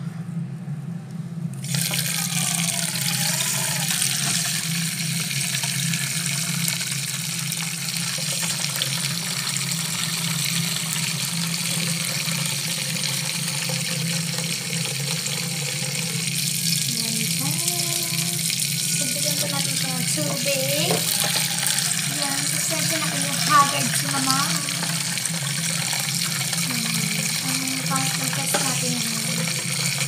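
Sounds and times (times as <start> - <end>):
tap water filling container: 1.6 - 30.0.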